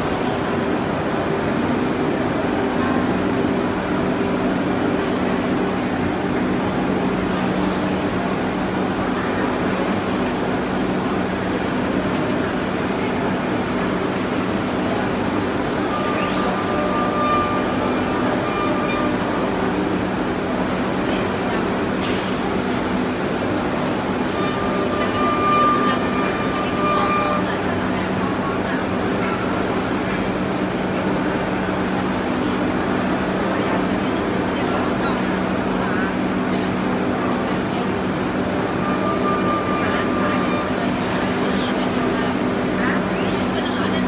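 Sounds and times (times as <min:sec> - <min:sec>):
high machine whine: 0:00.0 - 0:44.0
wood lathe machine hum: 0:14.5 - 0:20.4, 0:24.0 - 0:28.0.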